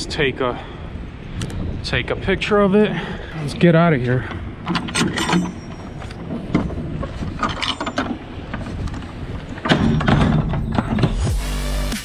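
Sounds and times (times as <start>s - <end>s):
trailer door clattering: 4.3s - 11.4s
metal door hardware clicking: 4.6s - 11.2s.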